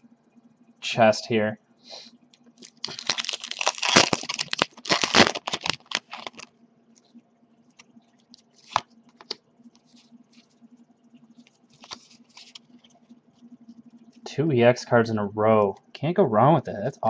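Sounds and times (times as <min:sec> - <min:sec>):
low steady hum: 0:00.0 - 0:17.0
cards rustling and sliding: 0:08.6 - 0:10.0, 0:11.8 - 0:12.6.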